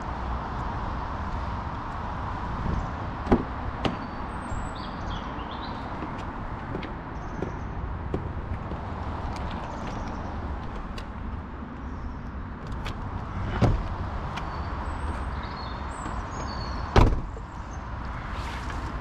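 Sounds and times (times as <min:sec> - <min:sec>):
car door shutting: 0:12.6 - 0:14.0, 0:16.9 - 0:17.4.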